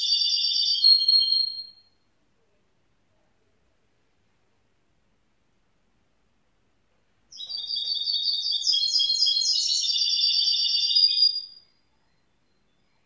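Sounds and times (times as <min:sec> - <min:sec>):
bird singing chattering song: 0:00.0 - 0:01.8, 0:07.3 - 0:13.0.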